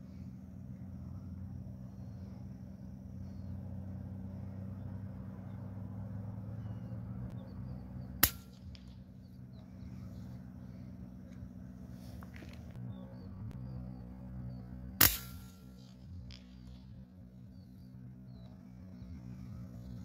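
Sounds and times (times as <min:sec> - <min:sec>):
faint bird chirps: 0:00.0 - 0:15.0, 0:15.6 - 0:20.0
steady low hum: 0:00.0 - 0:20.0
air rifle shot: 0:08.2 - 0:09.1, 0:15.0 - 0:16.8.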